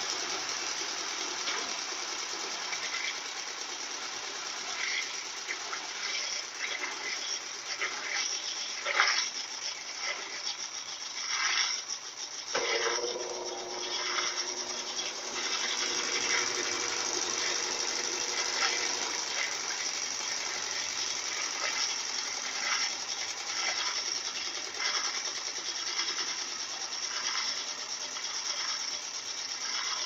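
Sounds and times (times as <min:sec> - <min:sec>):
washing machine spinning: 0:00.0 - 0:30.0
steady hum: 0:12.4 - 0:29.0.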